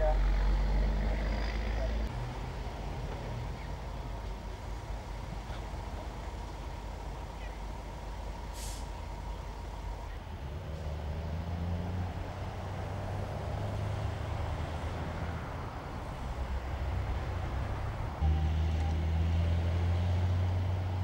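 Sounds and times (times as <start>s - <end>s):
road traffic noise: 0.0s - 21.0s
short hiss: 8.5s - 9.0s.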